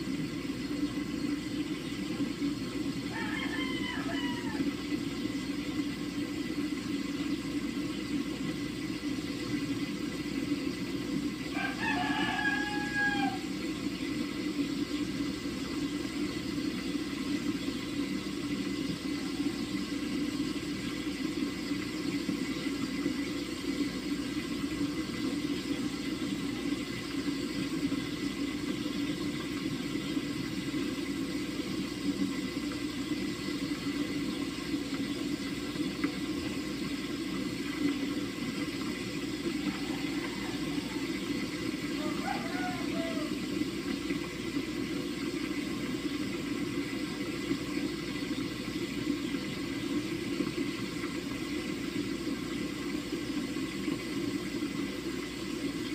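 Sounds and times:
rooster crowing: 3.1s - 4.8s, 11.5s - 13.6s, 39.5s - 43.5s.

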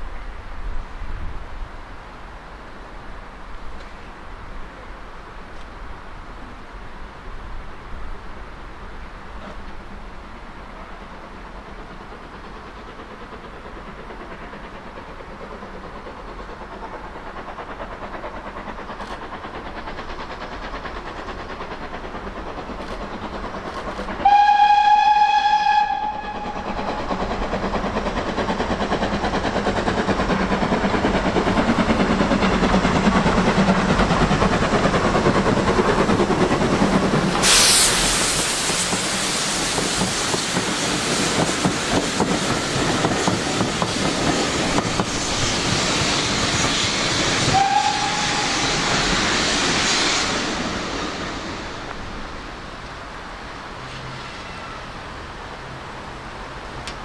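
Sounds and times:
steam hissing: 8.1s - 57.0s
steam locomotive chuffing: 9.3s - 57.0s
train whistle blast: 24.2s - 26.7s, 47.4s - 49.0s.

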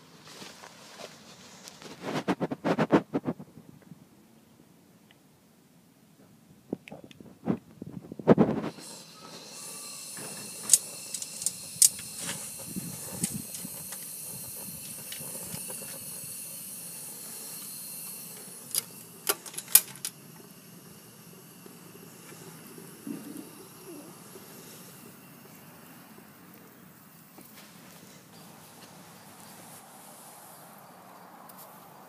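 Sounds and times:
gas burner hissing: 7.5s - 30.6s
sharp metallic clicks: 10.1s - 16.0s
metal door shutting: 18.7s - 20.1s.

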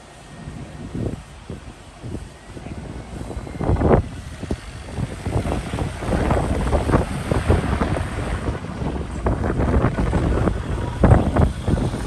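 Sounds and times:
low rumble: 0.0s - 12.0s
wind buffeting microphone: 0.0s - 12.0s.

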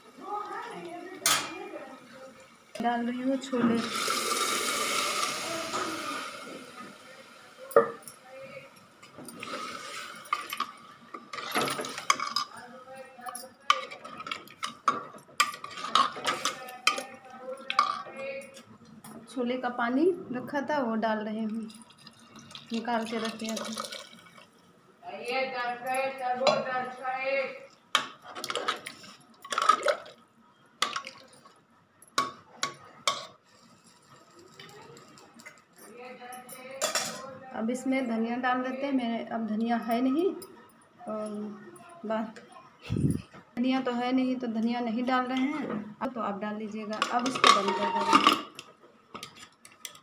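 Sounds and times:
spoon stirring liquid in pot: 13.7s - 18.0s
metal spoon scraping steel pot: 47.1s - 48.5s.

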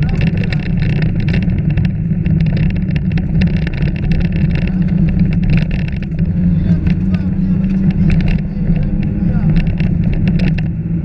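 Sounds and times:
car engine running at speed: 0.0s - 11.0s
gravel striking car: 0.0s - 11.0s.

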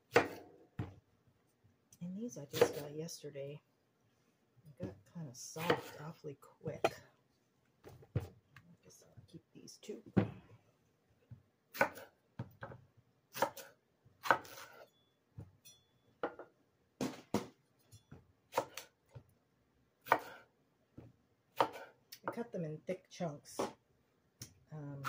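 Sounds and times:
knife chopping on wooden board: 0.1s - 1.0s, 11.7s - 13.6s, 14.2s - 14.8s, 20.0s - 20.4s, 21.6s - 21.9s.

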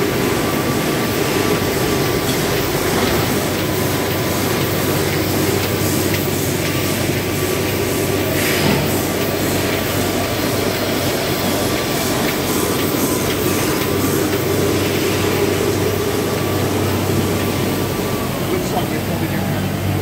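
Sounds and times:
printing press running: 0.0s - 20.0s.

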